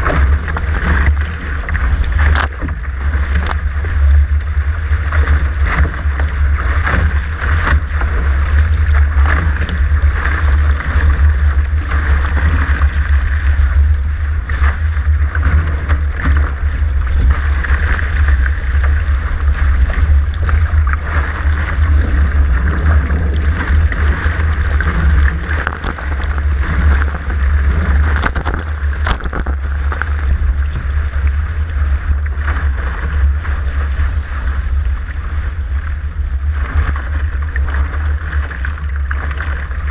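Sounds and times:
water rushing past hull: 0.0 - 39.9
wind buffeting microphone: 0.0 - 39.9.

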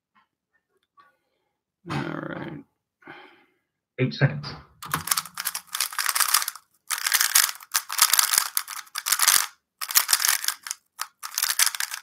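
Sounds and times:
plastic puzzle cube clicking: 4.8 - 12.0.

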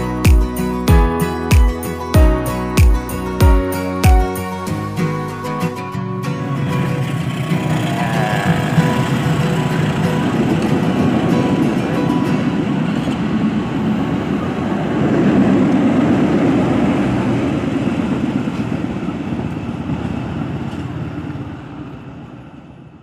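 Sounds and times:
train rumbling on rails: 4.6 - 23.0.

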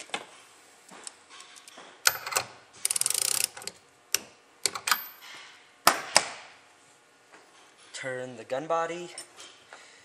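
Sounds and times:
ratchet wrench clicking: 1.6 - 3.8.

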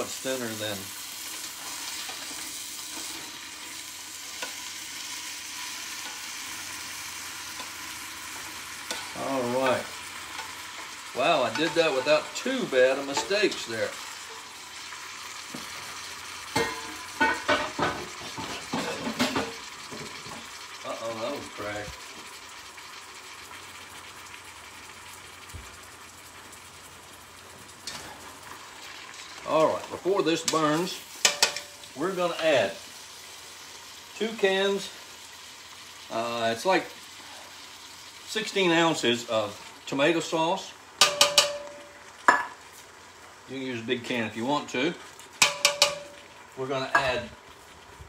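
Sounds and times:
meat sizzling: 0.0 - 48.0.

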